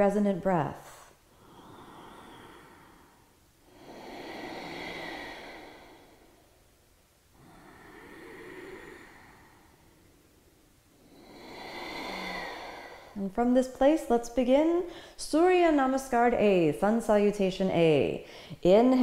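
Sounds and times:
woman breathing slowly: 0:01.0 - 0:13.3, 0:14.9 - 0:15.2, 0:18.2 - 0:18.6.

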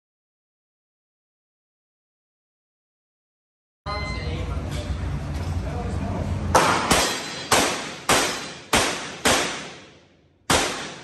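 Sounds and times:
revolver shots echoing indoors: 0:06.5 - 0:11.0.

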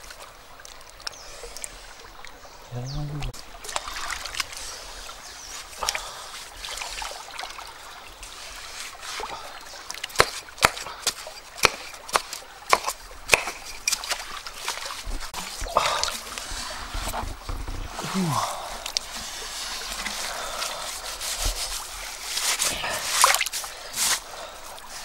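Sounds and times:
stream water sloshing and trickling: 0:00.0 - 0:25.0
stick striking wet mud: 0:10.1 - 0:14.2.

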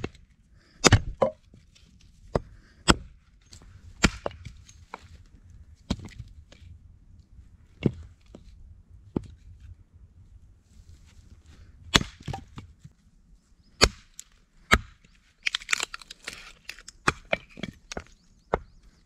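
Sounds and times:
axe chopping wood: 0:00.8 - 0:01.4, 0:02.3 - 0:03.1, 0:04.0 - 0:04.5, 0:11.9 - 0:12.6, 0:13.8 - 0:15.0, 0:17.0 - 0:17.8.

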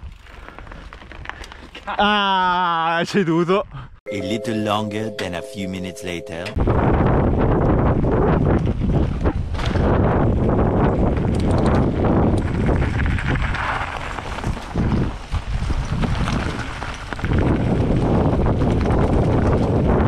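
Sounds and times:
wind buffeting microphone: 0:06.6 - 0:20.0.

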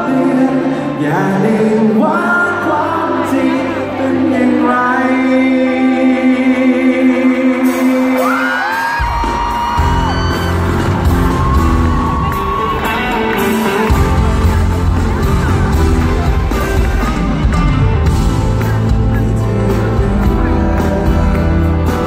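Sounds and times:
live band with singing: 0:00.0 - 0:22.0
bass and drums: 0:07.6 - 0:22.0
crowd whooping: 0:08.1 - 0:16.9.

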